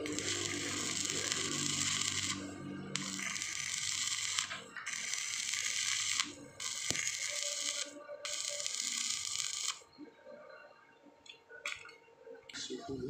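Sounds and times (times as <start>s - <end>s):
welding arc crackling and sizzling: 0.0s - 9.9s.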